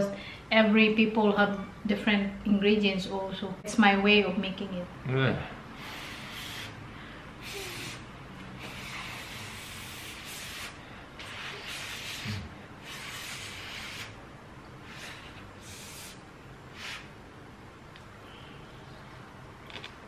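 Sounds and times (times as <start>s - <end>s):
puffs of breath blowing: 5.6s - 14.2s, 14.8s - 17.2s.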